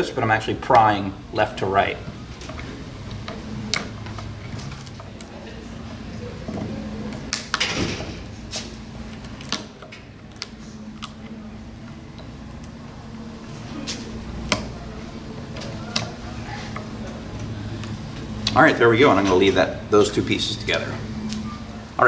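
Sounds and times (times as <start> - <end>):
steady low hum: 0.0 - 22.0
cane cracking and snapping: 8.6 - 12.8, 13.8 - 14.8.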